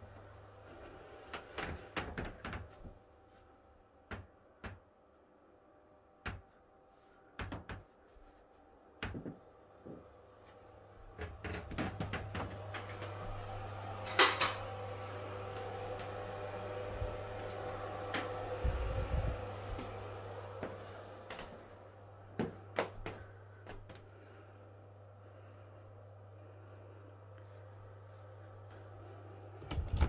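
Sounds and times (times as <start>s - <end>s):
low hum: 0.0s - 30.0s
louder steady hum: 8.1s - 30.0s.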